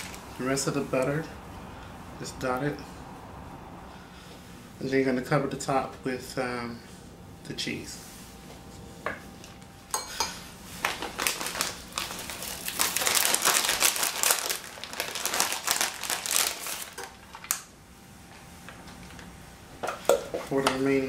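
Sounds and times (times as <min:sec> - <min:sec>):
plastic bag crinkling: 0:00.0 - 0:00.4, 0:10.7 - 0:17.7.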